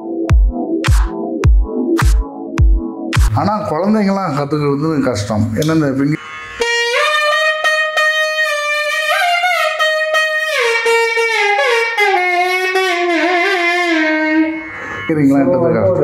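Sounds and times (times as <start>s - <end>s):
double-reed wind instrument melody: 6.2s - 16.0s.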